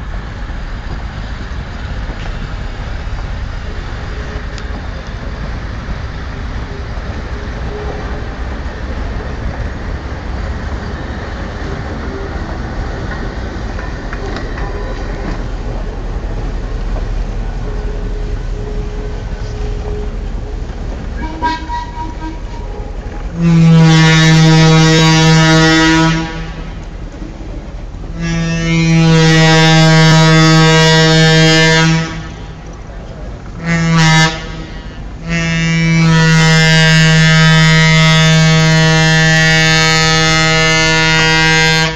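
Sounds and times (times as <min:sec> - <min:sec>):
rail cars rumbling past: 0:00.0 - 0:41.9
locomotive air horn blasts: 0:17.7 - 0:26.8, 0:28.1 - 0:32.6, 0:33.6 - 0:41.9.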